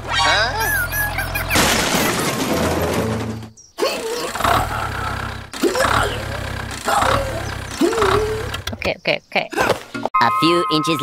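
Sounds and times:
toy tractor crashing over: 0:01.5 - 0:03.5.

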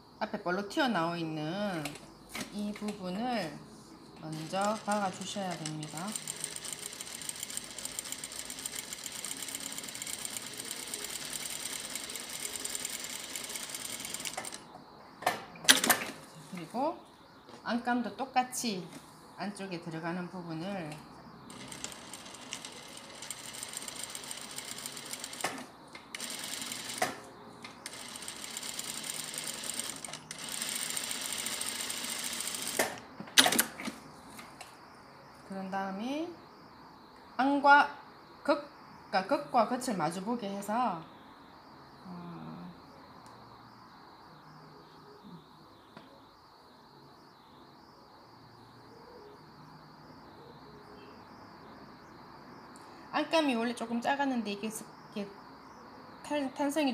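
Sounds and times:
sewing machine stitching: 0:04.3 - 0:14.6, 0:21.5 - 0:27.2, 0:27.8 - 0:33.8.

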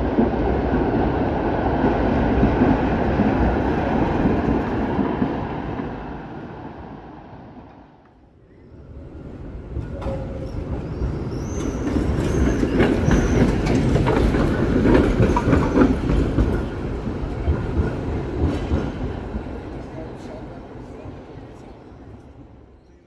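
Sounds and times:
tram rumbling past on rails: 0:00.0 - 0:23.0
high wheel squeals: 0:10.4 - 0:13.7.

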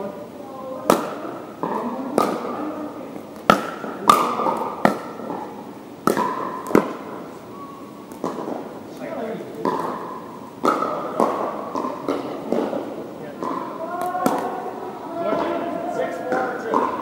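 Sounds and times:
paddles hitting plastic ball: 0:00.9 - 0:07.2, 0:08.1 - 0:14.7, 0:16.2 - 0:17.0.

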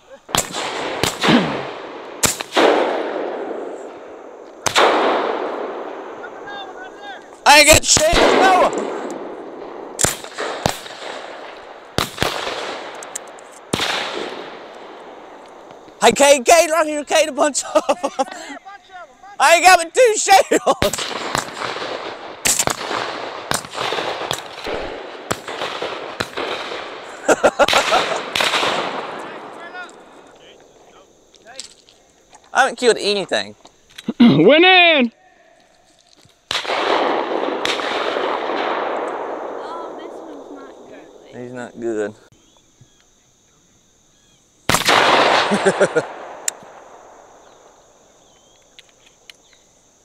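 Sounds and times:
shotgun shots with echo: 0:00.3 - 0:06.2, 0:07.8 - 0:13.0, 0:13.7 - 0:15.3, 0:20.8 - 0:29.5, 0:36.5 - 0:40.6, 0:44.7 - 0:47.0.

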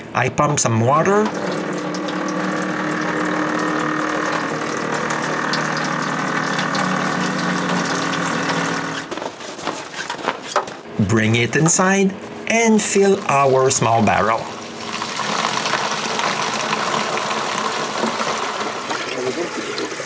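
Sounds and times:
water pump humming: 0:00.0 - 0:10.2, 0:10.8 - 0:20.0
water pouring into plastic bucket: 0:01.2 - 0:09.1, 0:14.6 - 0:20.0.

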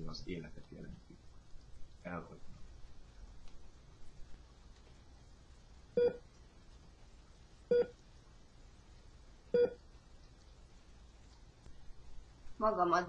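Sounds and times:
short electronic beeps: 0:06.0 - 0:06.2.

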